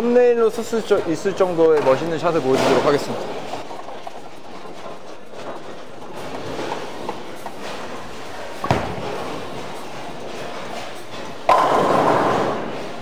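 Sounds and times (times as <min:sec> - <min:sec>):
bowling ball rolling: 0:00.5 - 0:13.0
bowling pins crashing: 0:07.6 - 0:13.0.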